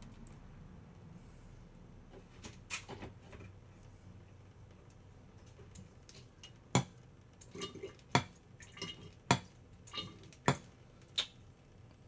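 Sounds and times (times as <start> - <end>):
oil dripping into a drain pan: 5.7 - 11.4.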